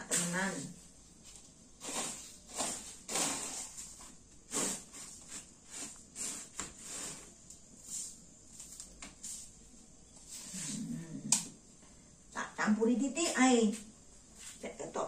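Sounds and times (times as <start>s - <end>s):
plastic cup scraping dry corn: 1.8s - 7.4s.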